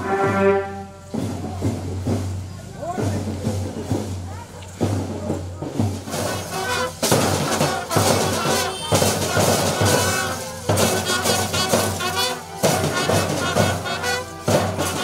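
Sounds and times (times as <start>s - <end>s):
live band playing: 0.0s - 1.5s, 6.2s - 15.0s
heavy drum beats: 0.0s - 15.0s.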